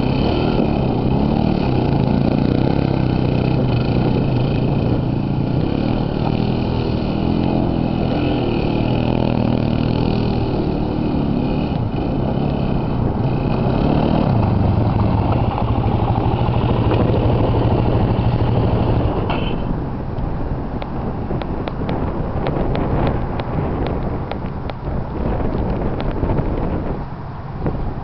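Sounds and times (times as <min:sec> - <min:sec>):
quad bike engine running: 0:00.0 - 0:19.8.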